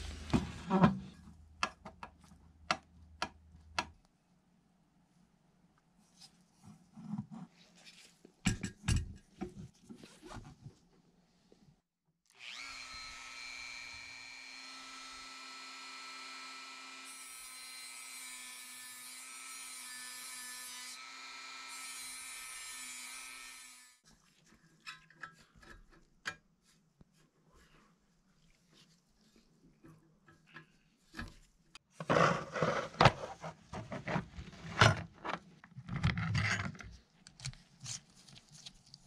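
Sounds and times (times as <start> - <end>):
rotary tool whining: 12.4 - 17.0.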